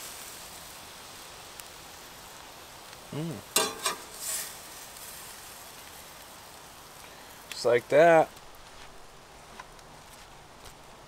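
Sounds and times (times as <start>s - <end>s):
fish sizzling in a skillet: 0.0s - 9.5s
person humming: 3.1s - 3.5s
spatula scraping in pan: 3.5s - 5.2s
metal spatula clacks: 3.6s - 4.1s.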